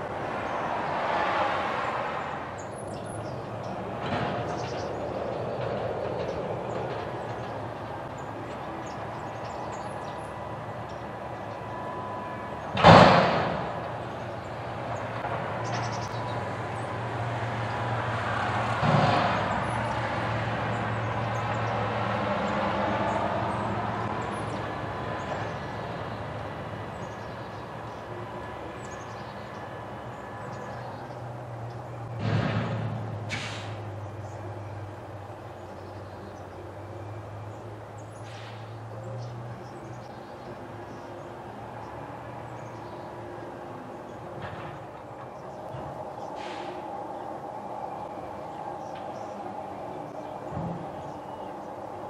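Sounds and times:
diesel engine running: 1.6 - 52.0
dumpster load crashing: 12.7 - 13.8
dumpster bang: 12.7 - 13.9, 18.8 - 19.6, 32.2 - 33.8.

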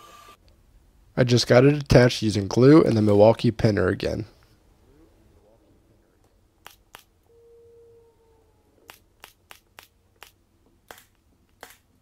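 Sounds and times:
pin nailer firing clicks: 8.9 - 11.9.

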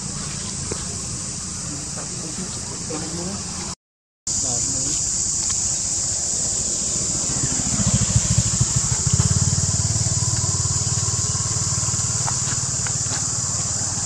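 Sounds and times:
high insect drone: 0.0 - 14.0
small engine rumbling: 5.3 - 14.0.

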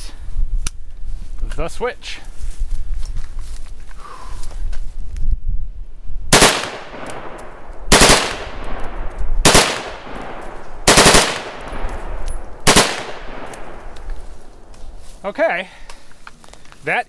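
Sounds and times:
rifle firing automatic bursts: 6.3 - 7.1, 7.9 - 8.7, 9.4 - 11.8, 12.6 - 13.5
gunshot echo: 6.3 - 13.9.

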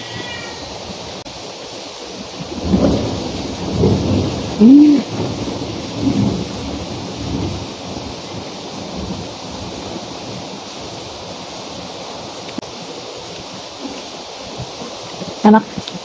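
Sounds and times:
heavy rain hissing: 0.0 - 16.0
person humming: 4.6 - 5.1.

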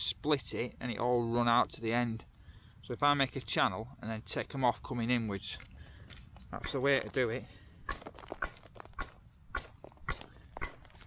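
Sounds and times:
adze chopping wooden log: 7.9 - 11.0.

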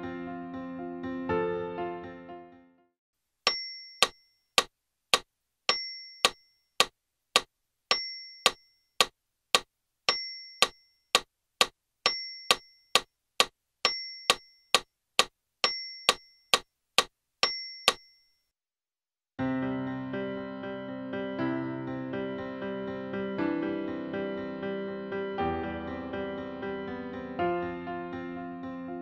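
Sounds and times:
bell-like metronome ding: 3.5 - 4.4, 5.7 - 6.9, 7.9 - 9.1, 10.1 - 11.0, 12.1 - 13.1, 13.9 - 14.8, 15.6 - 16.6, 17.4 - 18.3.

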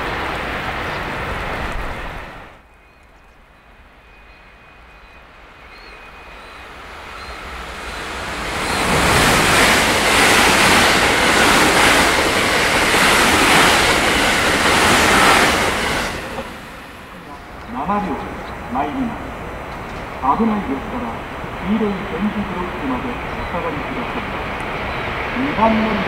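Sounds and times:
train passing at speed: 0.0 - 26.0.

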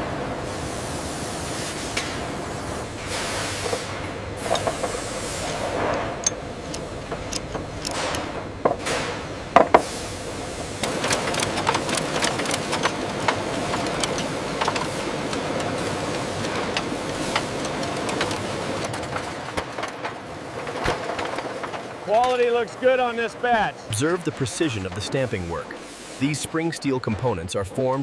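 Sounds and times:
machinery hum: 0.0 - 28.0
metallic clicks and clanks: 3.6 - 9.8, 10.8 - 22.5.

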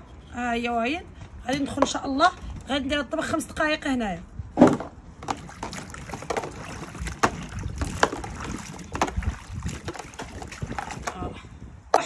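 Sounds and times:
wind rumble on microphone: 0.0 - 12.0
stalks knocking against basin: 4.6 - 11.2
water sloshing and splashing: 4.6 - 11.4.

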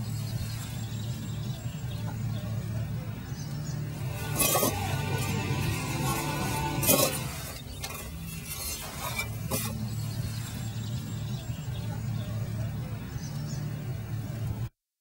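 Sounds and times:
bricks clinking together: 4.2 - 5.4.

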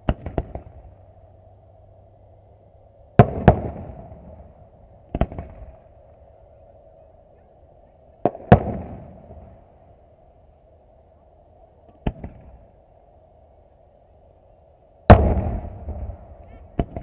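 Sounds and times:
distant firework booms: 0.0 - 1.0, 3.2 - 5.8, 8.2 - 9.6, 11.9 - 12.6, 15.1 - 17.0.

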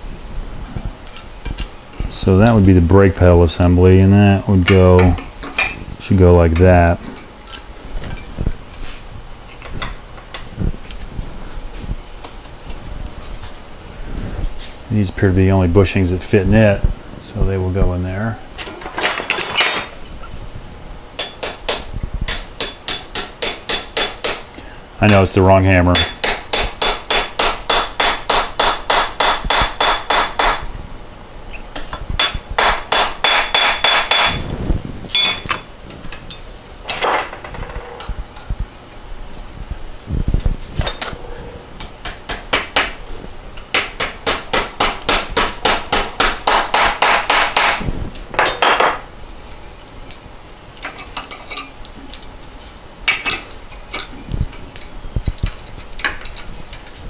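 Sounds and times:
hammer tapping metal: 21.2 - 24.4, 25.9 - 30.6, 31.8 - 34.4, 41.8 - 43.0, 43.7 - 47.8, 48.4 - 49.0.

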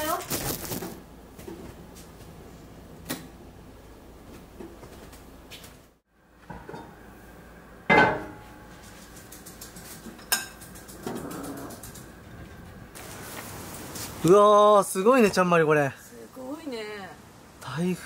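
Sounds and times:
pot and lid clanking: 7.9 - 8.5.

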